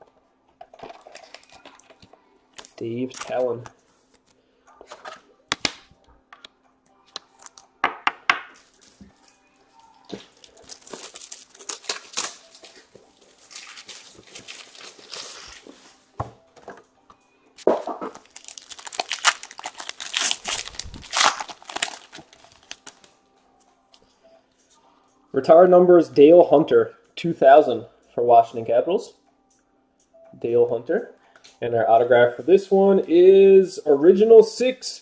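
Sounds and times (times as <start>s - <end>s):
cards clicking and tapping: 4.8s - 6.5s
wrapper tearing and crinkling: 10.1s - 15.8s, 18.1s - 23.1s.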